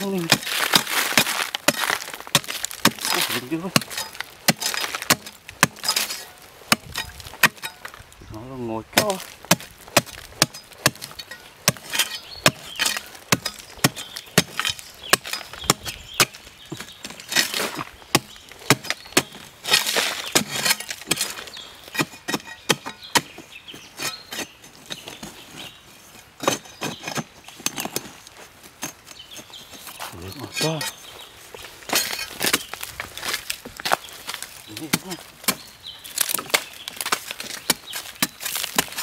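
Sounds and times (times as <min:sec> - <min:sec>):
digging tool striking hard earth: 0:00.0 - 0:25.3, 0:28.7 - 0:31.1, 0:31.8 - 0:39.0
loosened soil scraping and crumbling: 0:00.0 - 0:39.0.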